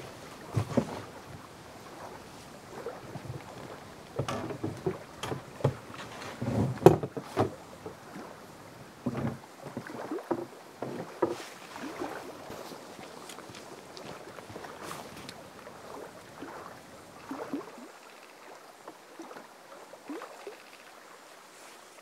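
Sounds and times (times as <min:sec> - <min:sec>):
gear knocking against canoe hull: 0:03.2 - 0:08.0, 0:09.0 - 0:11.5.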